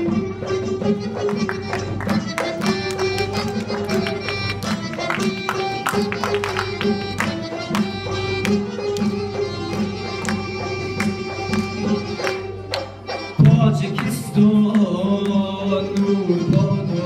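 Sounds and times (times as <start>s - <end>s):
accordion: 0.0s - 17.0s
man singing into a microphone: 13.4s - 17.0s.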